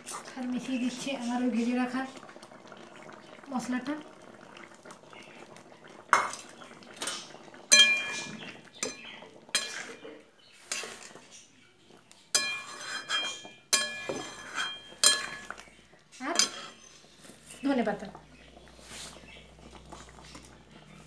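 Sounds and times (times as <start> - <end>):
metal spatula clinking in pan: 7.7 - 10.0, 12.3 - 15.6.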